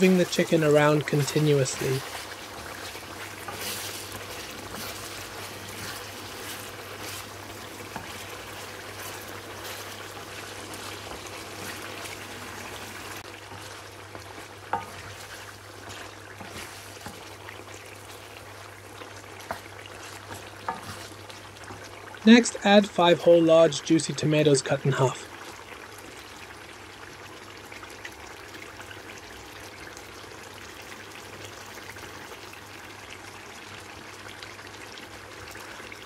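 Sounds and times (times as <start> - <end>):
chicken sizzling in hot oil: 0.0 - 36.0
spatula scraping and clicking in pan: 2.0 - 8.4, 13.5 - 17.2, 19.4 - 21.9.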